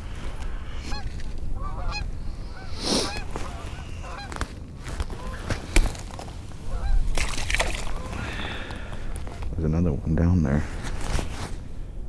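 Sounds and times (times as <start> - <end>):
geese honking: 1.6 - 4.4, 5.1 - 7.0.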